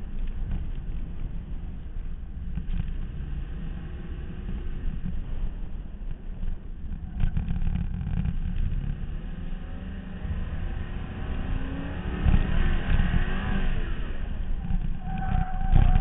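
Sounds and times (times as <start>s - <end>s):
car engine accelerating: 0.0s - 16.0s
low wind: 0.0s - 16.0s
road rumble: 0.0s - 16.0s.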